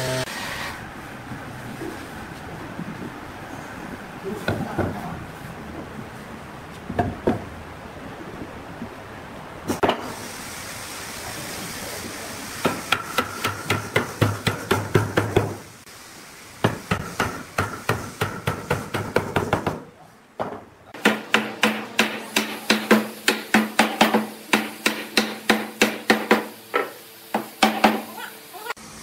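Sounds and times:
wooden mallet knocking on wood: 6.9s - 7.5s.

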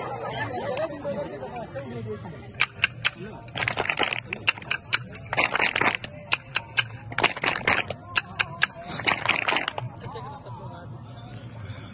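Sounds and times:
wooden hand clappers clacking: 2.5s - 9.9s.

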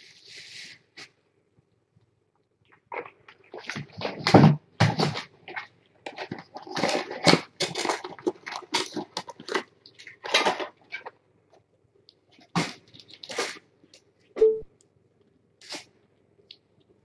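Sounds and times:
kittens chewing and licking: 5.4s - 14.4s.

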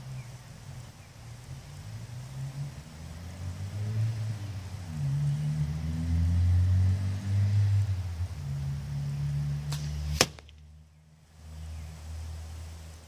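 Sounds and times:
arrow striking target: 9.6s - 10.7s.

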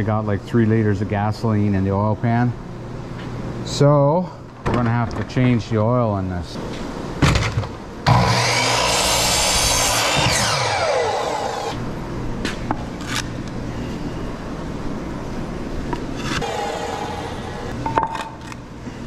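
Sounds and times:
miter saw cutting wood: 8.1s - 11.8s, 16.2s - 17.8s
saw motor winding down: 8.1s - 11.8s, 16.4s - 17.8s.

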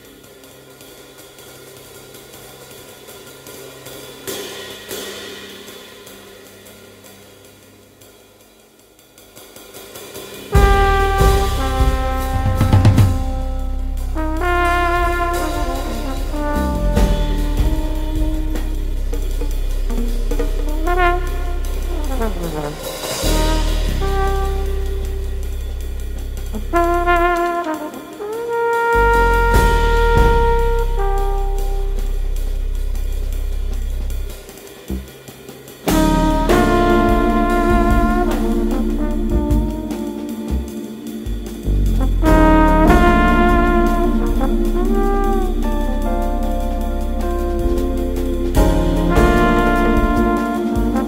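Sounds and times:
jazz trombone playing: 10.5s - 51.0s
deep sustained bass: 10.6s - 27.5s, 29.0s - 35.1s, 35.9s - 40.7s, 41.3s - 51.0s
held low note: 10.6s - 27.5s, 29.0s - 34.3s, 35.9s - 51.0s
hi-hat and cymbal strokes: 13.3s - 51.0s.

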